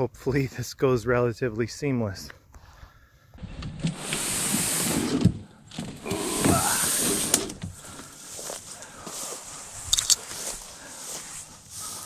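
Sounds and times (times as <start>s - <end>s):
canoe hull scraping over shore: 3.4s - 9.2s.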